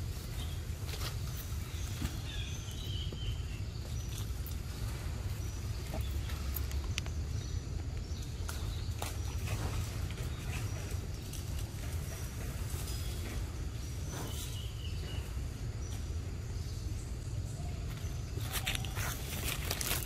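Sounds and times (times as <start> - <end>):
steady low rumble: 0.0 - 20.0
footsteps on dry leaves and twigs: 17.8 - 20.0.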